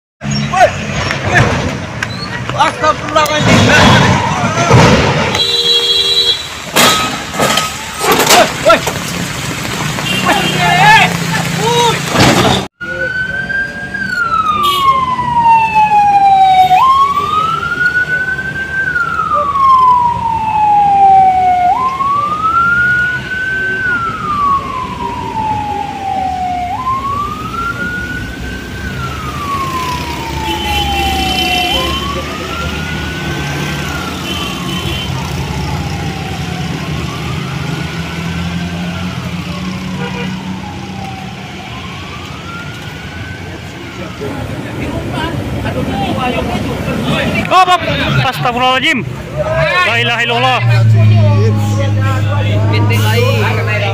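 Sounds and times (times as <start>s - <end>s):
low traffic rumble: 0.2s - 53.9s
emergency vehicle siren wailing: 2.4s - 5.4s, 6.8s - 9.0s, 10.2s - 53.9s.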